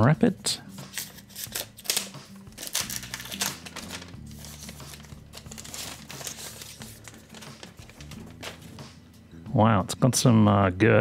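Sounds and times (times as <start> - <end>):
plastic wrap crinkling: 1.5 - 8.7.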